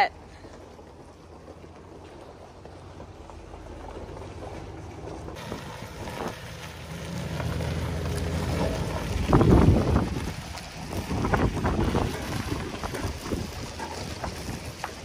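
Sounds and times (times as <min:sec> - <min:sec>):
truck engine running: 0:00.1 - 0:15.0
wind buffeting microphone: 0:08.5 - 0:15.0.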